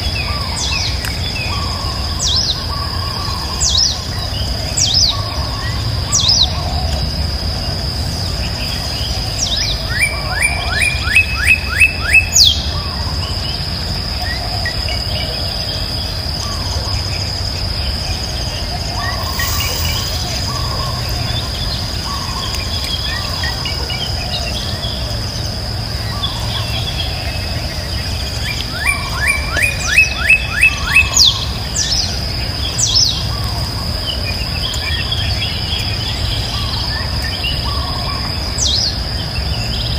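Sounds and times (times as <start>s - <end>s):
birds calling: 0.0s - 39.9s
insect drone: 0.0s - 39.9s
low rumble: 15.2s - 28.4s
bird rising note run: 19.0s - 23.2s.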